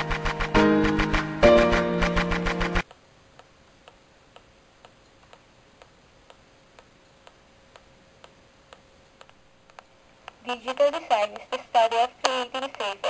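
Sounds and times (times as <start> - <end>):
faint regular ticking: 2.8 - 13.0.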